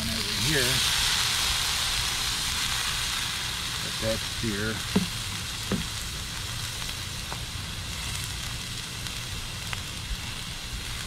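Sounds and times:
steak sizzling on griddle: 0:00.0 - 0:11.0
faint pop: 0:05.7 - 0:05.9.

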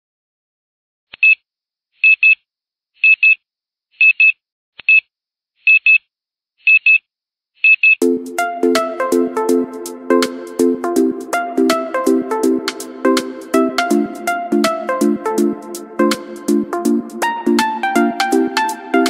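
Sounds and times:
electronic music: 0:08.0 - 0:19.0.

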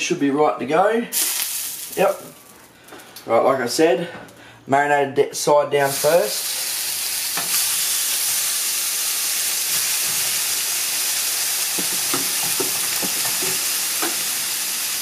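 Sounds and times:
fish sizzling in a frying pan: 0:01.2 - 0:02.2, 0:05.9 - 0:15.0.

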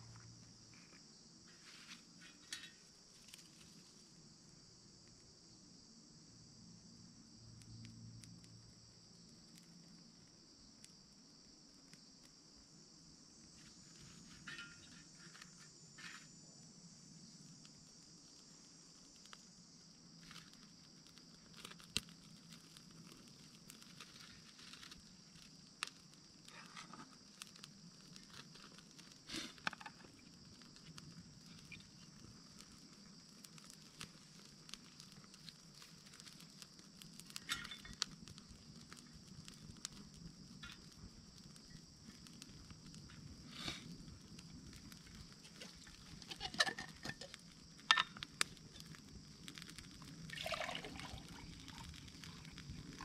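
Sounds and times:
high-pitched insect chorus: 0:00.0 - 0:53.0
twigs clicking and tapping: 0:20.2 - 0:43.2.

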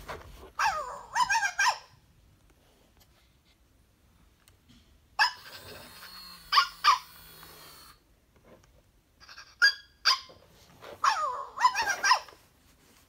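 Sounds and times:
toy puppy whimpering cry: 0:00.6 - 0:01.9, 0:05.2 - 0:08.0, 0:09.2 - 0:10.3, 0:11.0 - 0:12.4
toy puppy electronic yips: 0:00.6 - 0:02.0, 0:05.2 - 0:08.0, 0:09.2 - 0:10.4, 0:11.0 - 0:12.4
toy motor whirring: 0:05.3 - 0:08.0.

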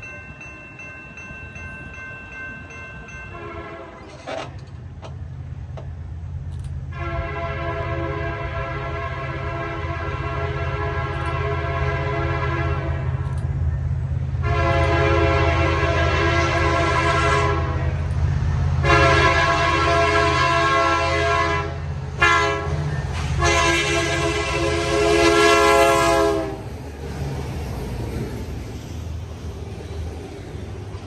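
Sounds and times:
diesel locomotives rumbling: 0:00.0 - 0:31.0
train cars rumbling past: 0:00.0 - 0:31.0
locomotive air horn: 0:03.3 - 0:04.5, 0:06.9 - 0:13.3, 0:14.4 - 0:18.1, 0:18.8 - 0:26.7.

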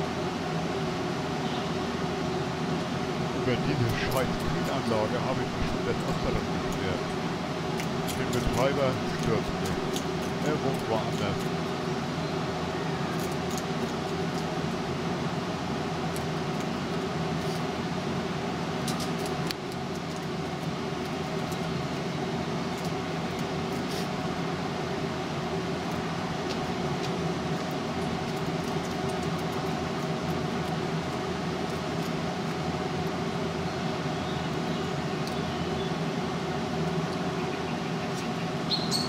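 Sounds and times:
refrigeration plant humming: 0:00.0 - 0:39.0
crow's beak pecking: 0:03.7 - 0:11.5.

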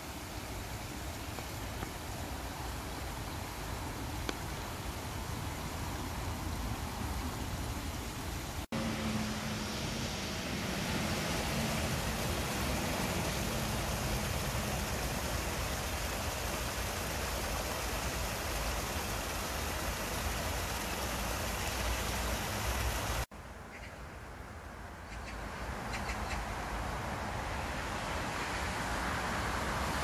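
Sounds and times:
falling rain: 0:00.0 - 0:23.3
running stream water: 0:00.0 - 0:23.9, 0:25.2 - 0:30.0
distant traffic rumble: 0:00.0 - 0:30.0.

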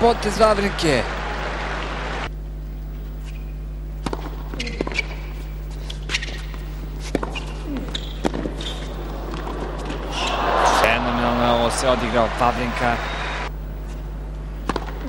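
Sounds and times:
steady low hum: 0:00.0 - 0:15.0
tennis ball bouncing on court: 0:04.0 - 0:05.2, 0:06.4 - 0:10.0, 0:14.6 - 0:15.0
racquet strokes popping: 0:05.8 - 0:10.1.

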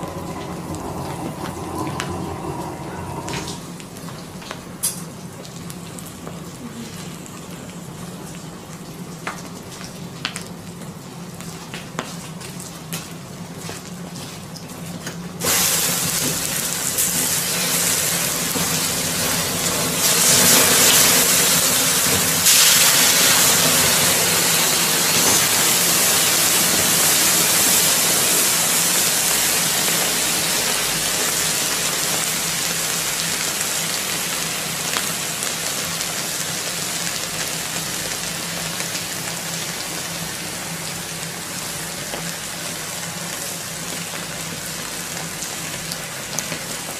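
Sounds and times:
water hissing to steam: 0:00.0 - 0:04.4, 0:15.4 - 0:46.7.

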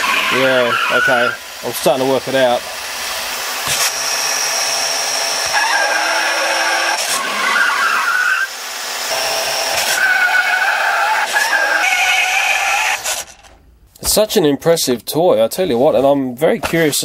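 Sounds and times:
toy race car engine sound effects: 0:00.0 - 0:01.4, 0:09.1 - 0:13.5
tyre screeching sound effects: 0:00.0 - 0:01.4, 0:05.5 - 0:08.5, 0:09.7 - 0:13.5.

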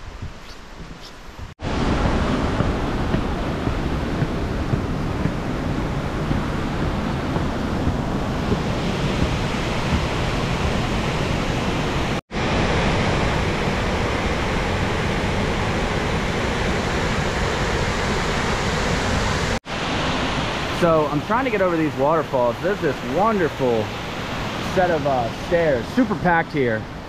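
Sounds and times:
wind buffeting microphone: 0:00.0 - 0:20.6
waterfall rushing: 0:01.6 - 0:26.7.

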